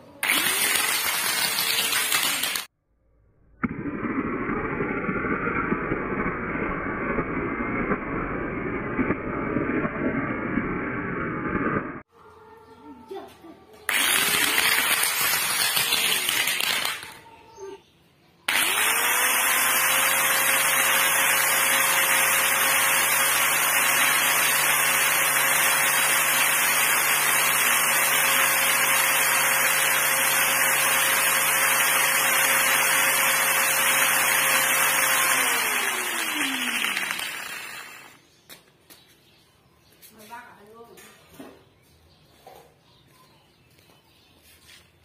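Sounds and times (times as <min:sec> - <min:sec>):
angle grinder motor whining: 0:00.2 - 0:02.7, 0:03.6 - 0:12.1, 0:13.9 - 0:17.2, 0:18.5 - 0:38.2.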